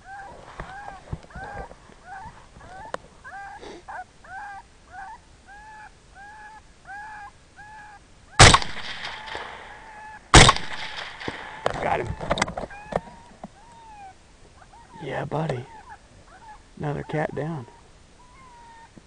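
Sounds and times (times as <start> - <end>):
short arching calls: 0.0 - 19.0
rifle shot with echo: 8.4 - 12.4.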